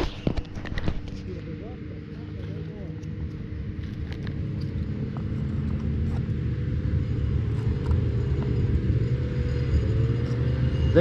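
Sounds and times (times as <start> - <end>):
snowmobile engines droning: 0.0 - 11.0.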